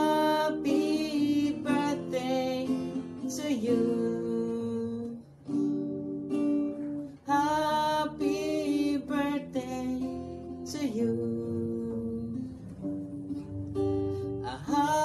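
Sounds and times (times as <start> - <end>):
man singing: 0.0 - 5.2, 7.3 - 12.6, 14.4 - 15.0
strummed acoustic guitar: 0.0 - 15.0.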